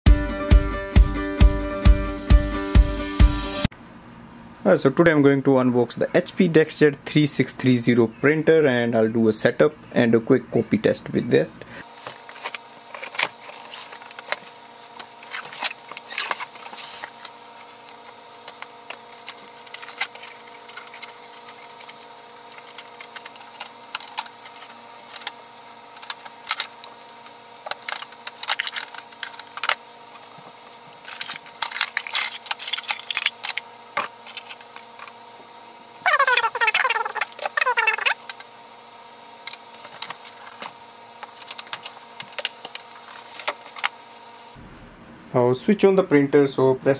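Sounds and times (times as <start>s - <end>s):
faint steady hum: 3.7s - 46.9s
packaging rustling and crinkling: 11.9s - 35.1s, 39.4s - 44.0s.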